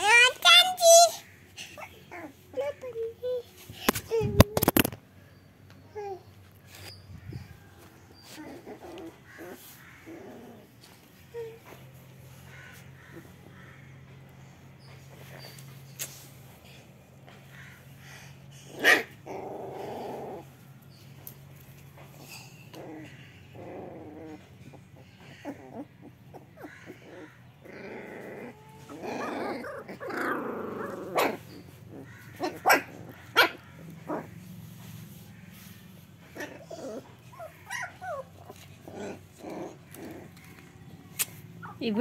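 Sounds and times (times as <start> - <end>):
puppies growling: 1.2 - 2.9, 6.0 - 42.0
puppies yapping: 6.1 - 16.1, 22.0 - 42.0
puppies whimpering: 22.6 - 35.0, 35.8 - 42.0.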